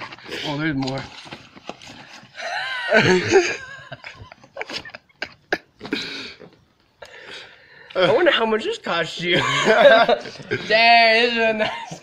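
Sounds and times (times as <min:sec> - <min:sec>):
gift packaging rustling: 0:00.0 - 0:04.9.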